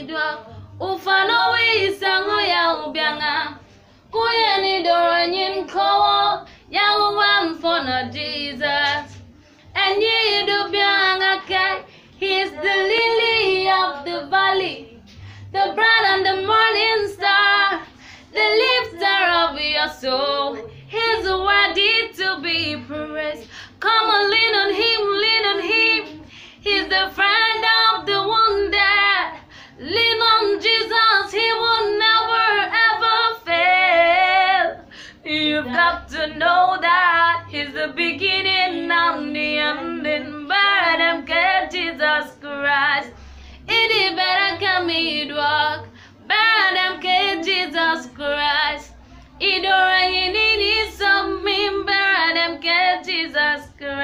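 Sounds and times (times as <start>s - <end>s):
singer breathing: 15.0s - 15.5s, 17.8s - 18.3s, 23.4s - 23.8s, 26.2s - 26.6s, 29.4s - 29.8s, 34.8s - 35.2s, 43.1s - 43.7s, 45.9s - 46.3s.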